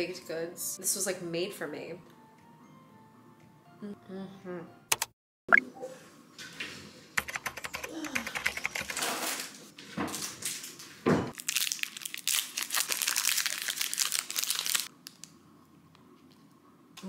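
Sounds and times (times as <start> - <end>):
foil wrapper crinkling and tearing: 11.3 - 15.4.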